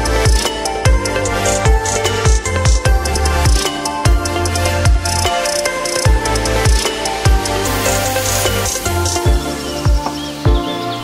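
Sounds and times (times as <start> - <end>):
deep steady drum beat: 0.0 - 10.6
held synth chords: 0.0 - 11.0.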